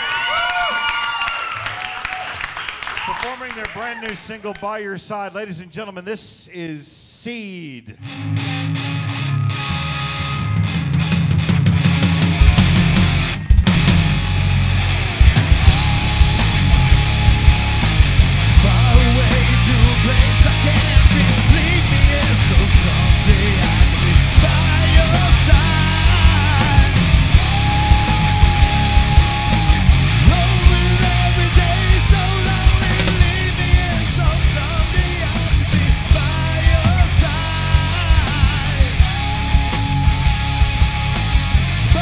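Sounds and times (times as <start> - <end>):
electric guitars and bass: 8.0 - 42.0
drum kit beats and cymbals: 9.6 - 42.0.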